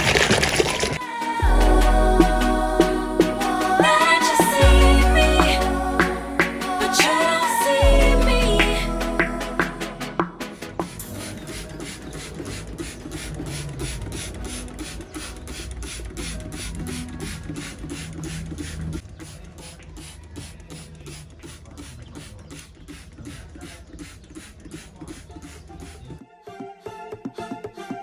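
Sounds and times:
electronic beat music: 1.0s - 19.0s
low bass notes: 1.4s - 11.6s.

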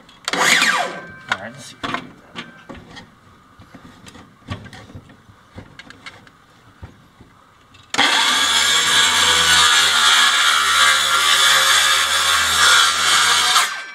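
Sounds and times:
knocks and scrapes on wood: 1.3s - 7.4s
circular saw running: 8.0s - 13.7s.

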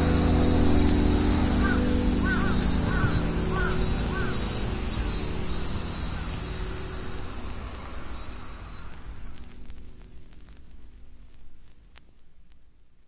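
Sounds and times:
low rumble: 0.0s - 11.8s
high-pitched shrill hiss: 0.0s - 12.4s
small chirps: 0.6s - 10.6s.

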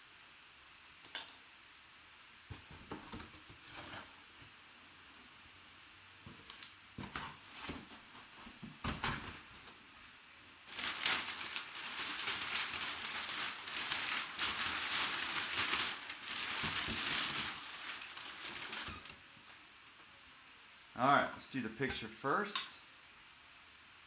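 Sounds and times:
packing paper rustling: 6.4s - 19.6s.

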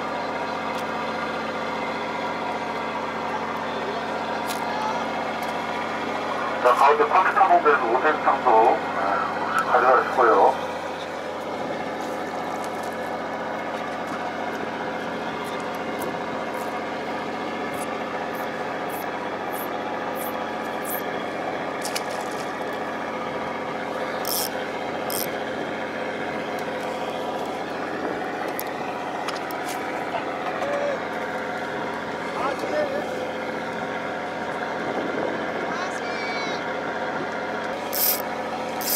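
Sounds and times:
boat engine droning: 0.0s - 38.9s
high-pitched hisses and scratches: 37.9s - 38.2s.

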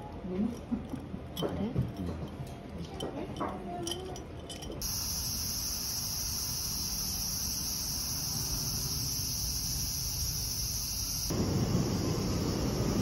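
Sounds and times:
insects chirring: 3.8s - 13.0s.

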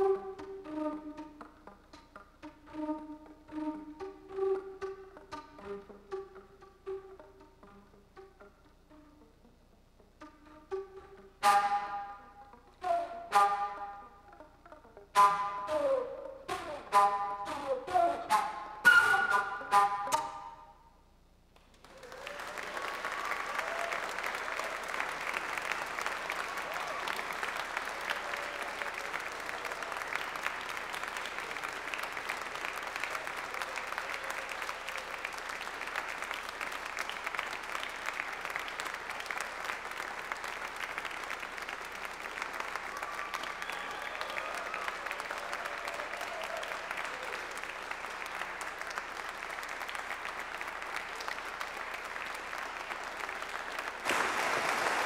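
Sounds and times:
audience applauding: 21.6s - 55.0s.

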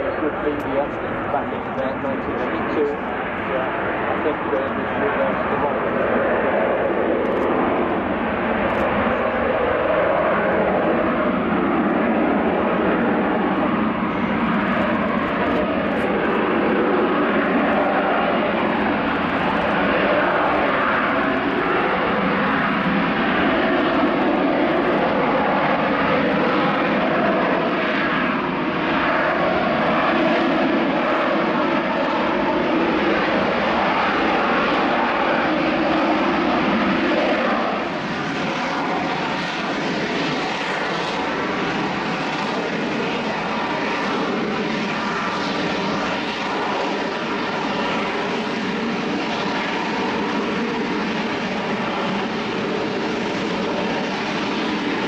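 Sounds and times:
faint engine whine: 0.0s - 55.0s
jet engine roar: 0.0s - 55.0s.

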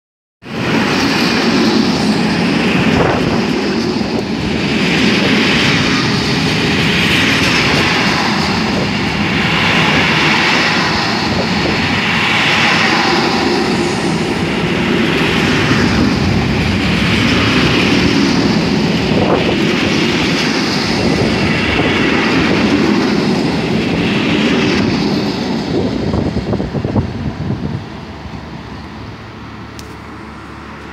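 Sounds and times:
train wheels rumbling on rails: 0.4s - 30.9s.

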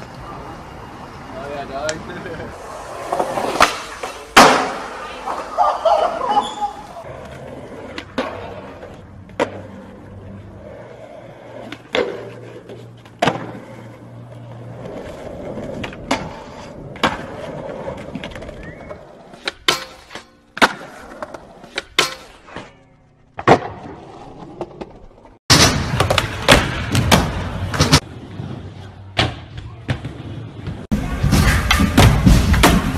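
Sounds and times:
skateboard wheels rolling: 0.0s - 32.9s
skateboard cracks: 2.9s - 5.5s.

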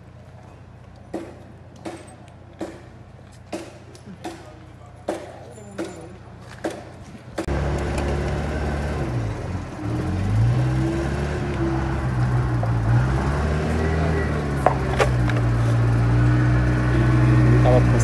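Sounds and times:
vehicle engine starting and revving: 7.4s - 18.0s.

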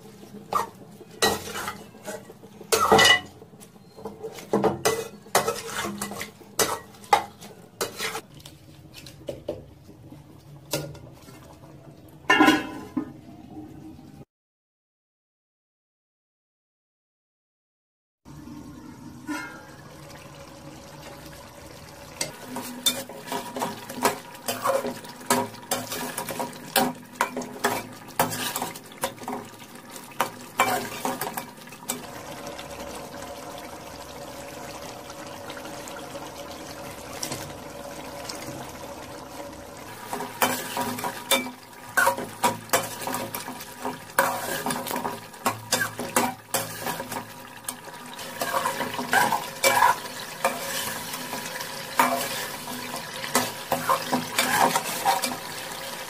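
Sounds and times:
ladle clinking in metal pot: 12.3s - 13.0s.

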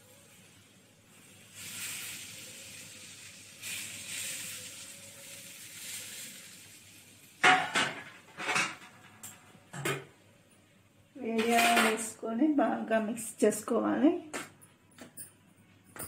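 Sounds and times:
hot oil sizzling: 0.0s - 9.4s.

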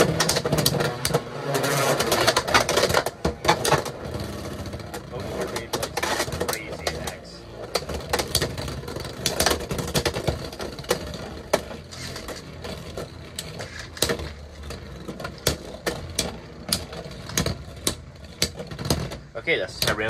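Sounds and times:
plastic clacks: 0.0s - 1.3s, 1.9s - 20.0s.

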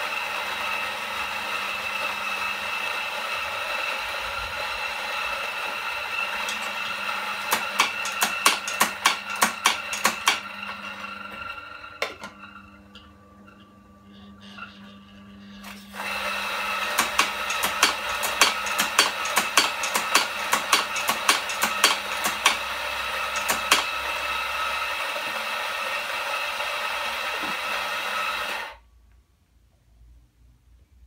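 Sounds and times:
coffee grinder grinding beans: 0.0s - 28.8s.

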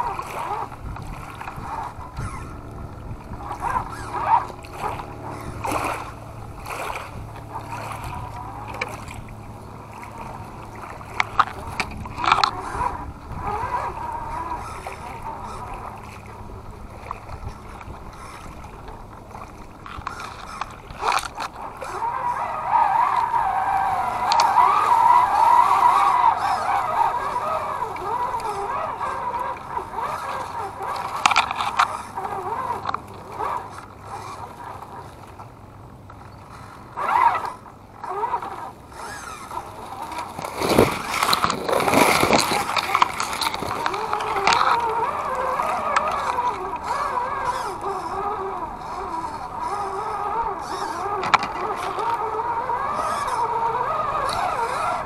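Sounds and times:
electric motor humming: 0.0s - 35.0s, 36.5s - 55.0s
tires crunching over leaves: 0.0s - 35.0s, 36.6s - 55.0s
twigs clicking: 11.2s - 12.7s, 30.8s - 32.0s, 40.0s - 47.0s, 51.0s - 52.2s.

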